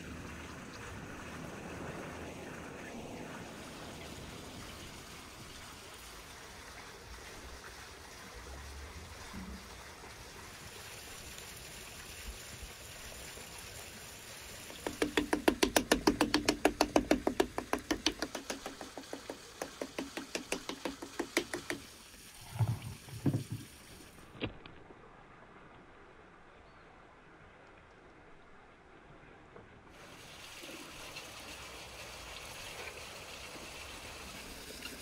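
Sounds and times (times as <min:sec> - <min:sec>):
dull thumps: 0:14.8 - 0:21.8
fork tapping on pizza dough: 0:14.8 - 0:21.8.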